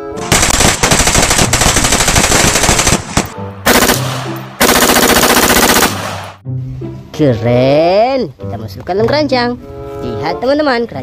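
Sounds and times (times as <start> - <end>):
automatic gunfire bursts: 0.3 - 6.4.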